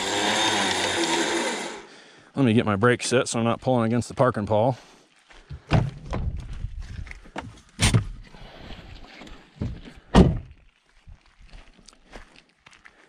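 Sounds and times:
knocks and thumps: 5.5s - 6.6s, 9.6s - 10.5s
car door swinging open: 10.1s - 10.5s.

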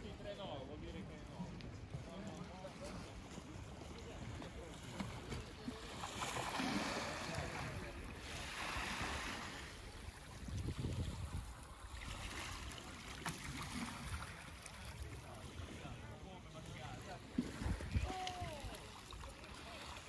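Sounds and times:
waves washing onto gravel: 5.9s - 11.4s
wind buffeting microphone: 9.0s - 12.2s, 17.5s - 18.7s.

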